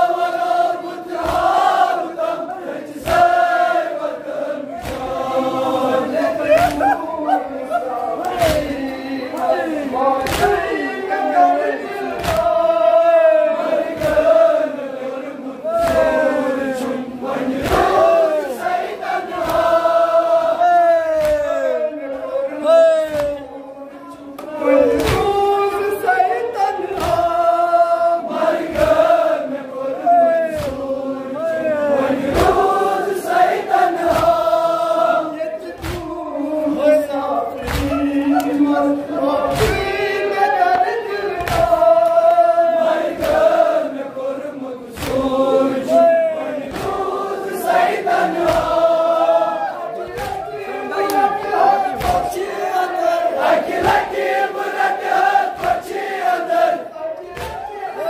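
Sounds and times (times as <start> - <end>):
group of men chanting: 0.0 - 58.0
man singing a lament: 35.2 - 43.0.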